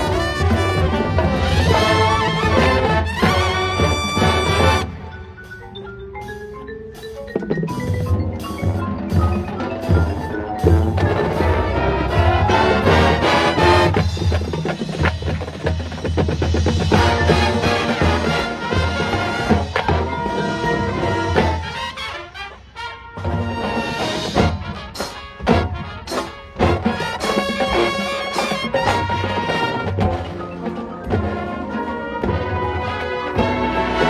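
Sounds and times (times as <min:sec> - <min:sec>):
brass horns: 0:00.0 - 0:05.3, 0:09.9 - 0:14.4, 0:16.8 - 0:34.0
marching drums: 0:00.0 - 0:34.0
marimbas and mallet percussion: 0:04.0 - 0:13.0, 0:14.0 - 0:21.8, 0:27.1 - 0:33.6.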